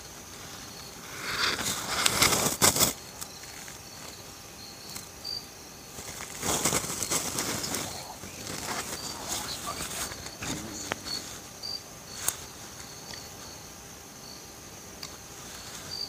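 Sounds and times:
insects chirping: 0:00.0 - 0:16.0
rustling: 0:05.9 - 0:13.5.

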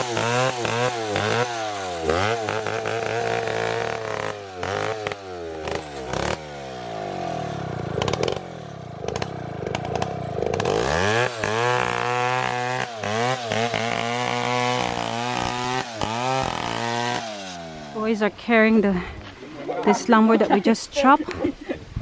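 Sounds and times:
chainsaw ripping a log: 0:00.0 - 0:18.0.

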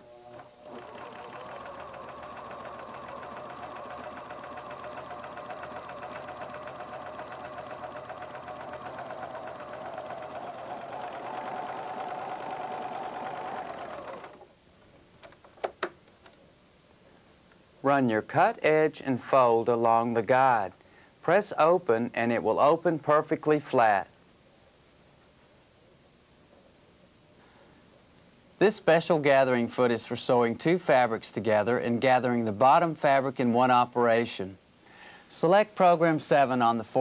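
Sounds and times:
serger running: 0:00.0 - 0:14.4.

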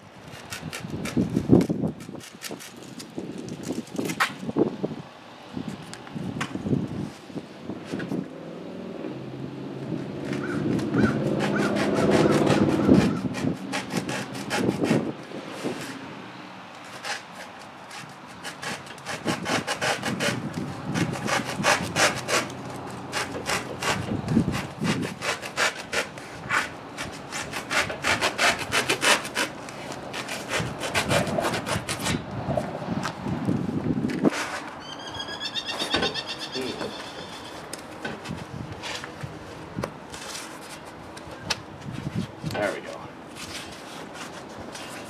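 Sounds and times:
knife sawing through foam: 0:11.0 - 0:15.9, 0:16.9 - 0:22.5, 0:23.1 - 0:32.2
foam squeaking: 0:34.4 - 0:37.8.

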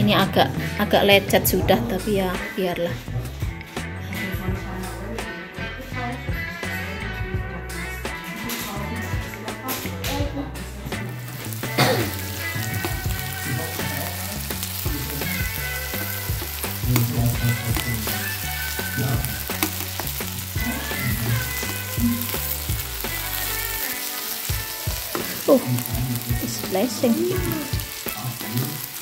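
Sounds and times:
food sizzling in oil: 0:10.8 - 0:29.0.

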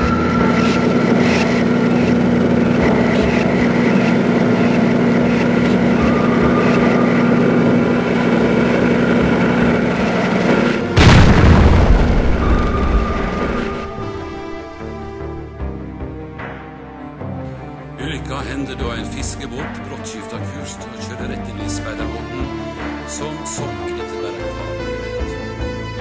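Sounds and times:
dense rumbling texture: 0:00.0 - 0:16.5
background music with held tones: 0:00.0 - 0:26.0
loud boom: 0:11.0 - 0:15.4.

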